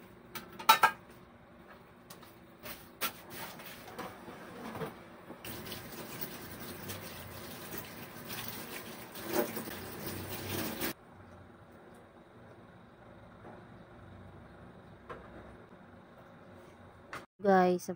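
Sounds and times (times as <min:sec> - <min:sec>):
dishes clinking: 0:00.6 - 0:01.0
tap water running into sink: 0:05.4 - 0:11.0.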